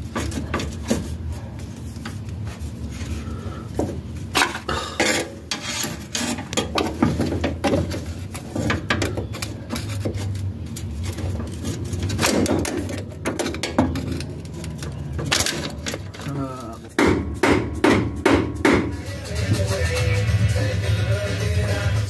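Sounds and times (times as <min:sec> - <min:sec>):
metal tools clinking and scraping: 0:04.3 - 0:17.0.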